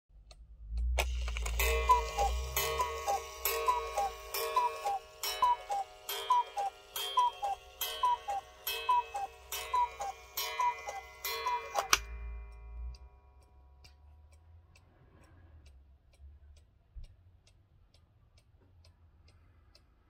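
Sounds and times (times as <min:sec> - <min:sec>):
clock mechanism click: 0:00.2 - 0:13.1
cuckoo clock calling: 0:00.9 - 0:13.1.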